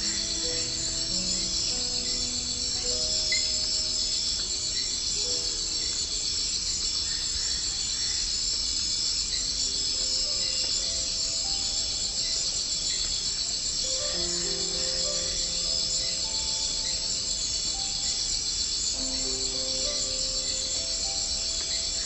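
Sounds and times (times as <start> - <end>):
insects shrilling: 0.0 - 22.0
soft music of held notes: 0.0 - 22.0.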